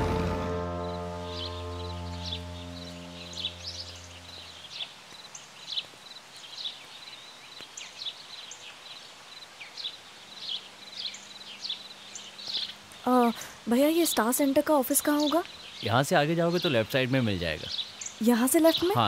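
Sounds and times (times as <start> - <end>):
music chord: 0.0 - 4.8
birds chirping: 0.0 - 19.0
faint outdoor hiss: 0.0 - 19.0.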